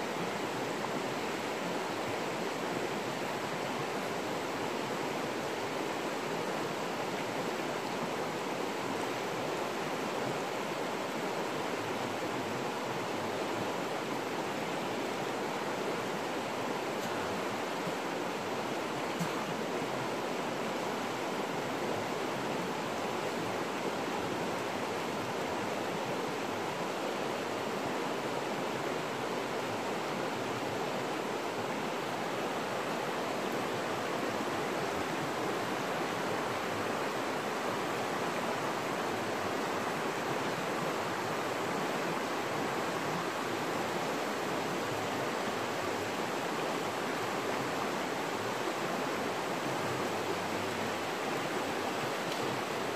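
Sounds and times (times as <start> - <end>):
river water rushing: 0.0 - 52.9
faint click: 52.2 - 52.6.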